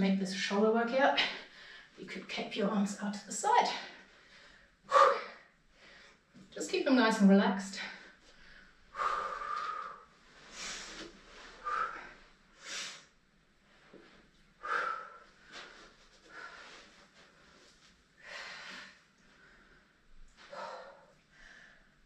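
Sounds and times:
person breathing hard: 8.3s - 13.1s.

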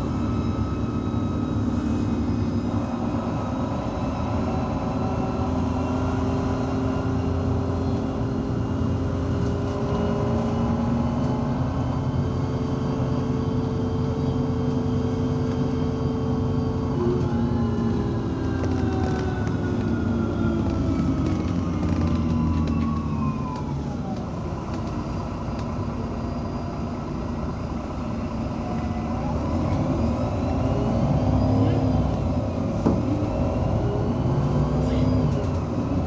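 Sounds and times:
bus drivetrain rumble: 0.0s - 36.0s.

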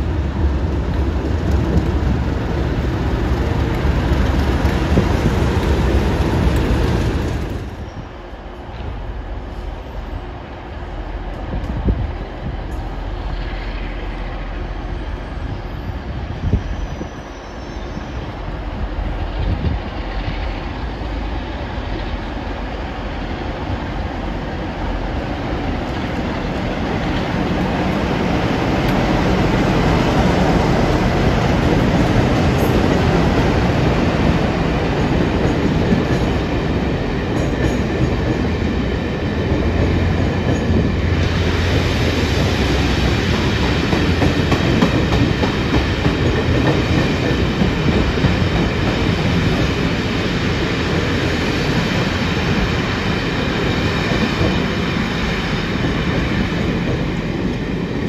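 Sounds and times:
freight train wheels over rail joints: 0.0s - 58.0s
high squealing wheels: 7.6s - 8.3s, 13.3s - 18.7s.

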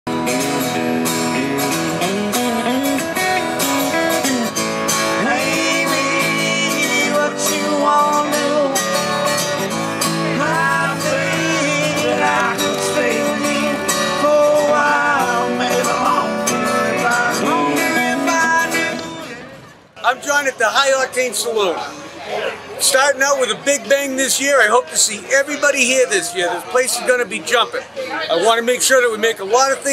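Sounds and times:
electric guitar: 0.1s - 19.8s
acoustic guitar: 0.1s - 29.9s
person singing: 5.0s - 9.4s, 10.1s - 19.6s.

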